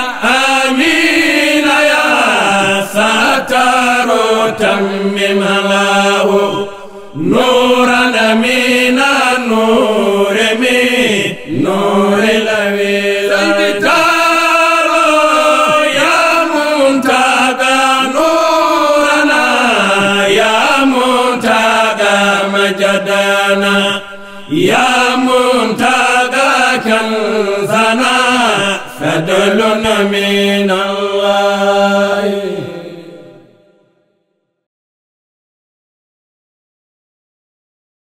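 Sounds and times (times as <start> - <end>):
men chanting a devotional song: 0.0 - 33.9
breaths: 6.6 - 7.2, 24.0 - 24.5.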